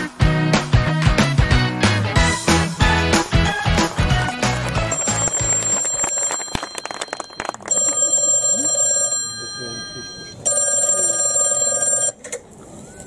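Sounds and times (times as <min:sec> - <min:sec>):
bell ringing with a trill: 0:04.8 - 0:11.8.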